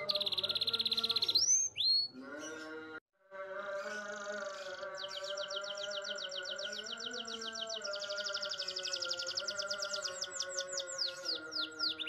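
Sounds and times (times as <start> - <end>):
canary trilling: 0.0 - 2.8.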